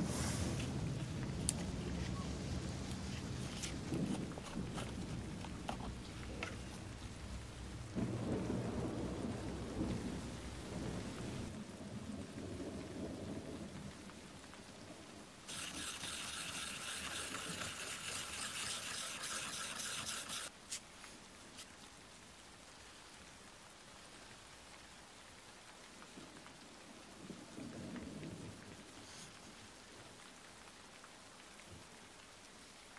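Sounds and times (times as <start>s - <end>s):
heavy rain hissing: 0.0s - 11.6s, 15.3s - 25.8s
low thunder rumble: 0.0s - 14.0s.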